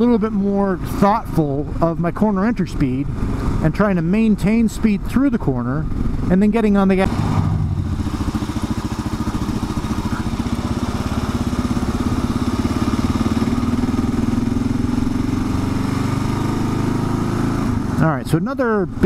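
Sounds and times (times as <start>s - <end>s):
motorcycle engine running: 5.8s - 18.3s.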